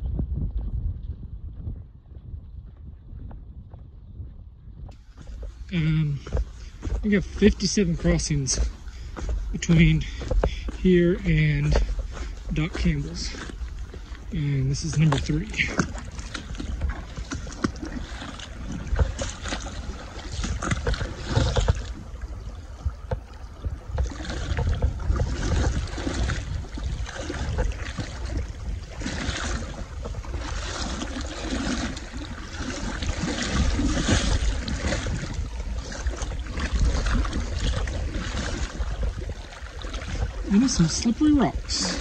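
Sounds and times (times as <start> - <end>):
low rumble on microphone: 0.0 - 42.0
feet splashing through water: 4.9 - 42.0
river current rushing: 27.2 - 42.0.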